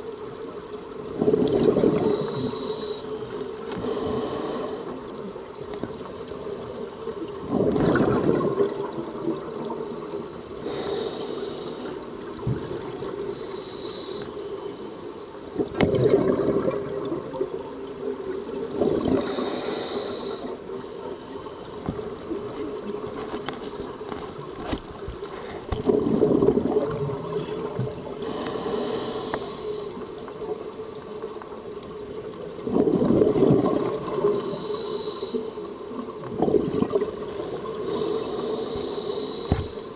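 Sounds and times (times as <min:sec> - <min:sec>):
low underwater hum: 0:00.0 - 0:39.9
exhaled bubbles burbling: 0:01.0 - 0:02.6, 0:07.3 - 0:10.1, 0:12.1 - 0:13.3, 0:15.6 - 0:19.4, 0:25.7 - 0:28.3, 0:32.3 - 0:34.6, 0:35.9 - 0:37.8
regulator hiss on inhale: 0:02.0 - 0:05.3, 0:10.0 - 0:12.4, 0:13.1 - 0:15.6, 0:19.1 - 0:22.0, 0:28.2 - 0:31.9, 0:34.2 - 0:35.8, 0:37.4 - 0:39.9.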